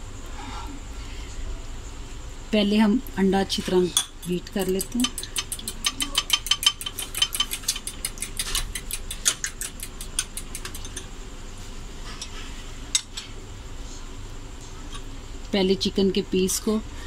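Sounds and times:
fork whisking egg in glass bowl: 4.2s - 11.1s.

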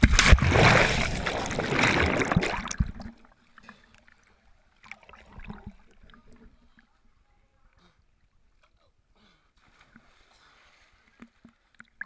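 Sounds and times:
water splashing: 0.0s - 6.7s
water lapping and dripping: 0.0s - 7.0s.

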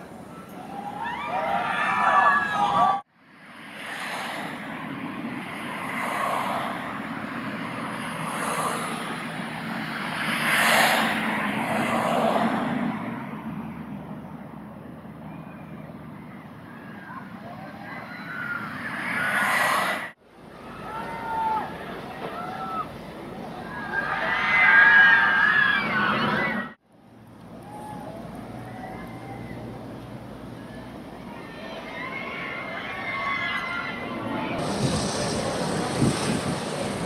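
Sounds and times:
roller coaster rumbling on track: 0.0s - 37.0s
riders screaming: 0.3s - 3.0s, 16.6s - 23.0s, 23.6s - 26.8s, 27.6s - 29.8s, 30.6s - 34.9s.

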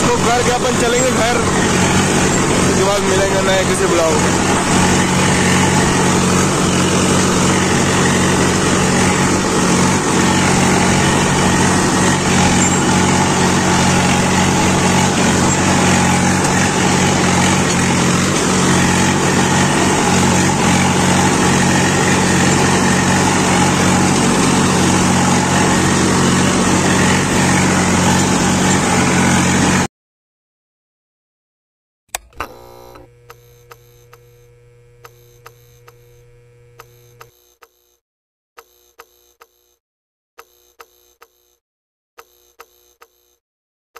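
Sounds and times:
tractor diesel engine running: 0.0s - 29.9s.

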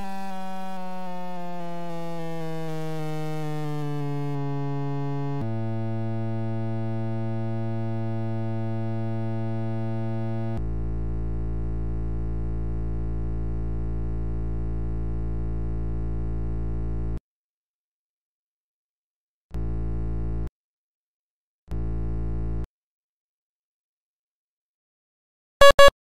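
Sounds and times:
synthesizer with buzzy held tones: 0.0s - 10.8s, 25.6s - 26.0s.

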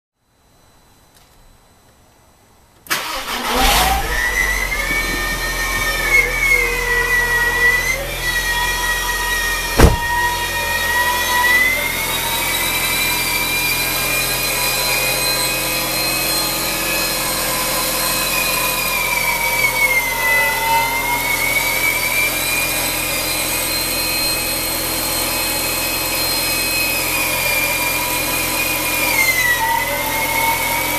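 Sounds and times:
car engine idling with whine: 3.0s - 30.9s
sharp knock: 9.8s - 10.2s.

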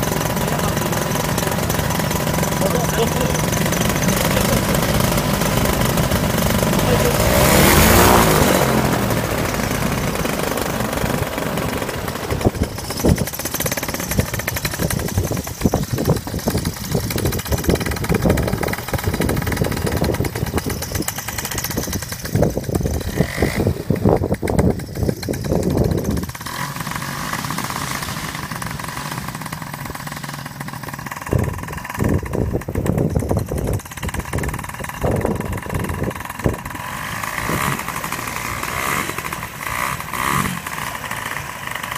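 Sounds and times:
paramotor engine droning: 0.0s - 41.9s
wind buffeting microphone: 11.0s - 26.4s, 31.2s - 38.5s.

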